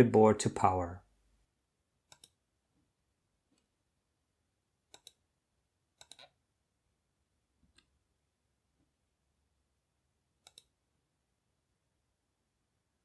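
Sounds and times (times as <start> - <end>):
computer mouse clicks: 2.1 - 2.4, 4.9 - 5.2, 6.0 - 6.4, 10.4 - 10.8.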